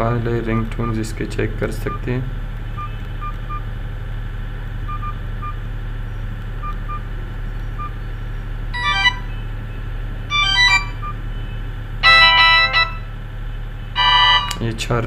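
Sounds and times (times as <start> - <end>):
low hum: 0.0 - 14.8
key-press beeps: 4.9 - 5.6, 10.3 - 11.2
ringtone melody: 8.8 - 9.4, 10.3 - 11.2, 12.0 - 13.1, 14.0 - 14.6.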